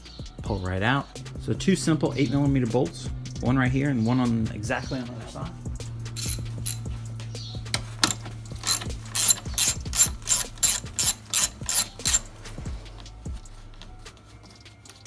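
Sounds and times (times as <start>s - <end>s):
ratchet clicking: 6.2s - 6.9s, 8.0s - 12.3s.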